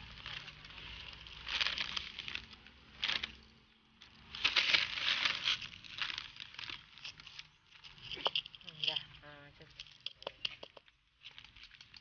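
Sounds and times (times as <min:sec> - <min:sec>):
trickle of stones: 0:00.0 - 0:12.0
pebbles rattling into a pot: 0:04.2 - 0:12.0
single stones clicking: 0:08.1 - 0:12.0.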